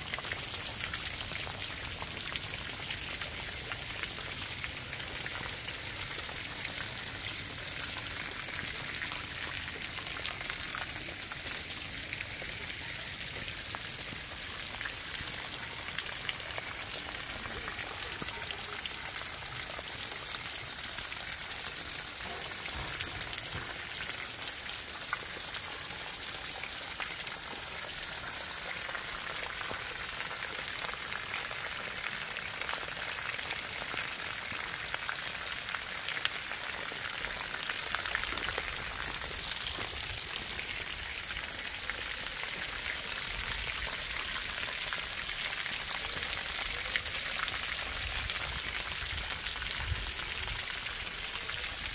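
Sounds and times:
water dripping off eaves: 0:00.0 - 0:51.9.

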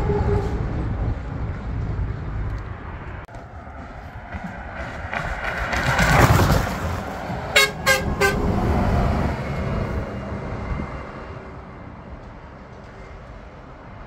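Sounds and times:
tyres on the road: 0:00.0 - 0:14.0
car passing close: 0:01.7 - 0:12.0
short horn toots: 0:07.6 - 0:08.4.

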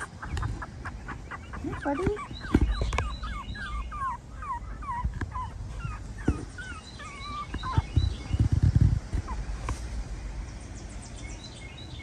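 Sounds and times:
puppies whimpering: 0:00.0 - 0:08.6
low muffled thumps and rumble: 0:02.0 - 0:03.3, 0:04.8 - 0:06.8, 0:07.5 - 0:10.2.

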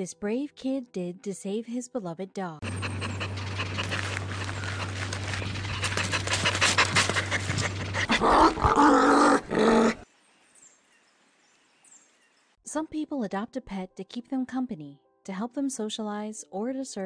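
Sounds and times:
dog panting: 0:02.6 - 0:08.7
low hum: 0:02.6 - 0:09.6
dog calls: 0:02.6 - 0:10.0.

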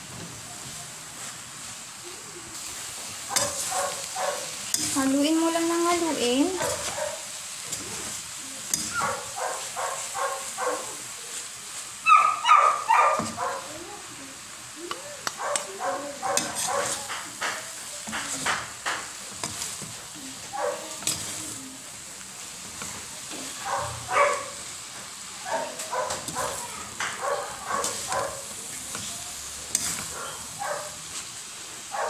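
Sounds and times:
light sizzle: 0:00.0 - 0:32.0
metal spatula scraping a wok: 0:02.6 - 0:10.6, 0:15.2 - 0:24.8, 0:25.7 - 0:31.4.

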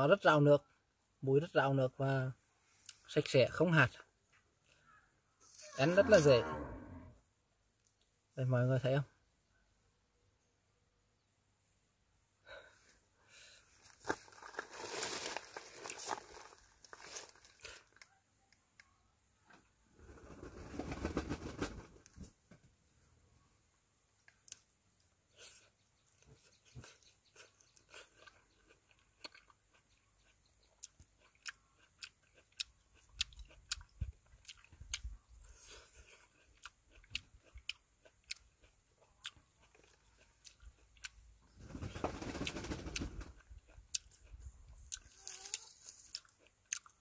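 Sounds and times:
fruit rustling being pulled apart: 0:13.8 - 0:18.1
person chewing wet smacks: 0:25.6 - 0:41.2, 0:43.5 - 0:47.0.

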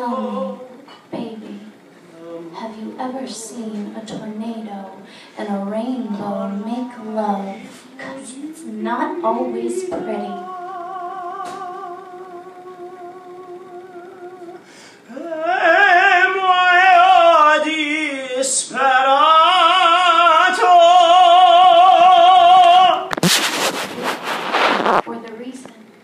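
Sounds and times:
person singing operatically: 0:00.0 - 0:00.9, 0:06.0 - 0:23.1
short noisy burst: 0:23.1 - 0:25.0.

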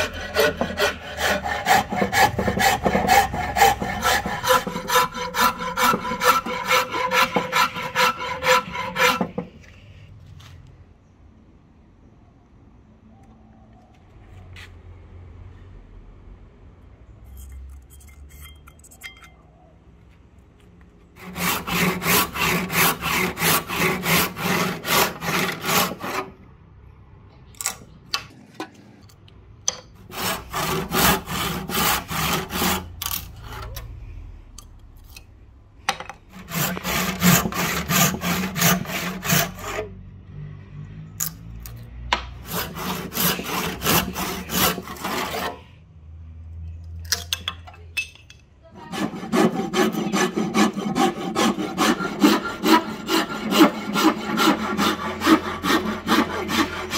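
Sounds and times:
hand saw cutting wood: 0:00.0 - 0:09.6, 0:21.2 - 0:26.3, 0:30.0 - 0:33.8, 0:36.3 - 0:39.9, 0:42.4 - 0:45.7, 0:48.8 - 0:56.9.

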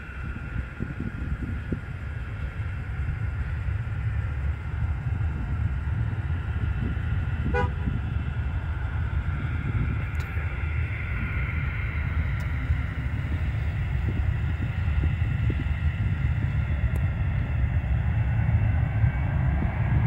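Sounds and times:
distant jet engines whining: 0:00.0 - 0:20.0
wind rumble on microphone: 0:00.0 - 0:20.0
short horn toot: 0:07.5 - 0:07.8.

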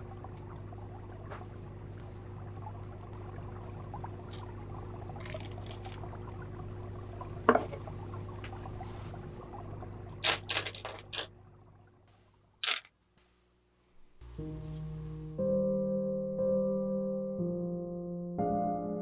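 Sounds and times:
steady low hum: 0:00.0 - 0:15.8
supplies handled on hard desk: 0:10.2 - 0:11.3.

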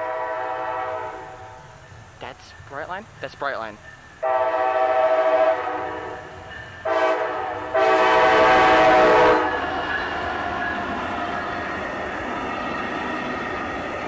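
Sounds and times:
train horn blasts: 0:00.0 - 0:01.7, 0:04.2 - 0:09.7
locomotive rushing past: 0:00.0 - 0:14.0.

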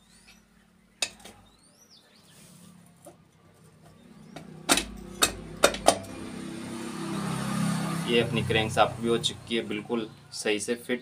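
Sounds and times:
sharp metallic knocks: 0:04.3 - 0:06.2.

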